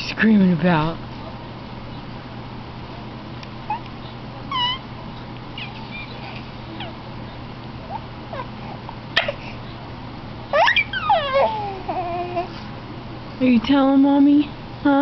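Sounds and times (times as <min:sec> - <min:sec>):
steady low hum: 0:00.0 - 0:15.0
infant squealing and cooing: 0:04.5 - 0:04.8, 0:05.6 - 0:07.0, 0:10.5 - 0:12.5.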